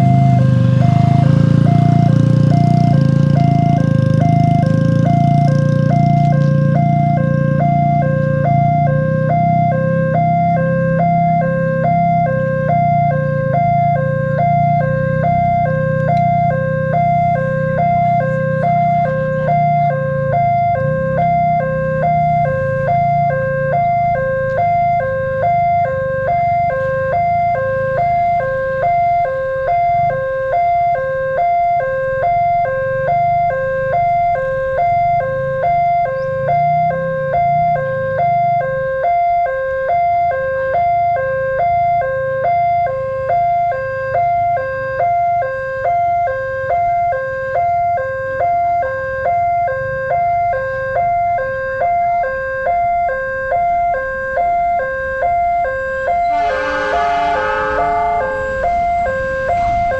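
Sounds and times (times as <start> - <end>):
two-tone electronic warning siren: 0.0 - 59.9
low rumble: 56.0 - 59.9.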